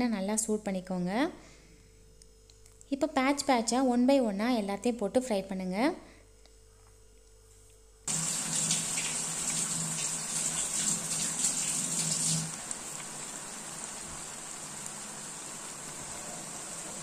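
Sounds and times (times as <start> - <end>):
deep-frying sizzle in oil: 8.1 - 17.0.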